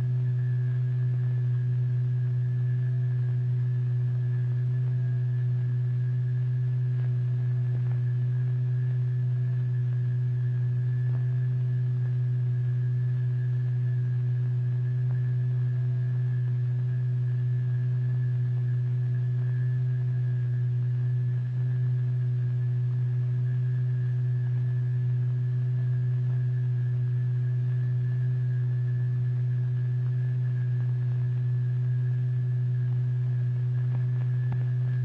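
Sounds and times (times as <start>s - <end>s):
steady low pure tone: 0.0s - 35.0s.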